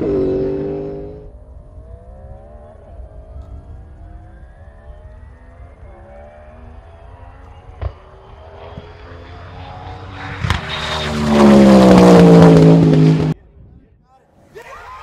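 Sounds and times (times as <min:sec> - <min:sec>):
race car engine passing: 0:00.0 - 0:13.4
exhaust crack: 0:06.7 - 0:13.4.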